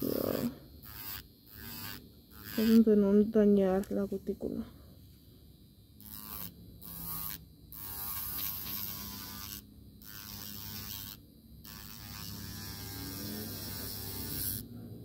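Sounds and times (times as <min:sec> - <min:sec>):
electric nail file grinding: 0:00.0 - 0:03.2, 0:06.0 - 0:14.7
motor hum: 0:00.0 - 0:03.2.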